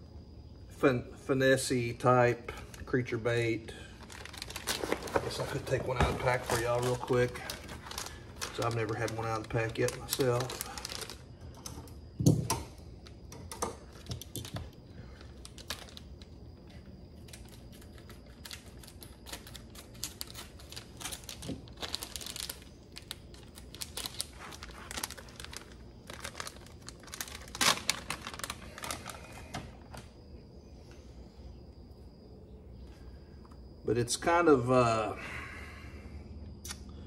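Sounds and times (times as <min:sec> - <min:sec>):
plastic package crinkling: 0:03.9 - 0:12.0, 0:13.8 - 0:30.0.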